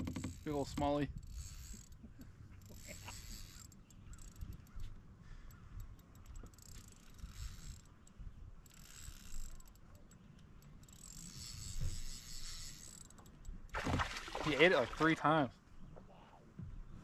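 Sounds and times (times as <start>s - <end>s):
fishing reel being cranked: 0.0s - 2.0s, 2.6s - 4.8s, 5.8s - 8.0s, 8.6s - 13.6s.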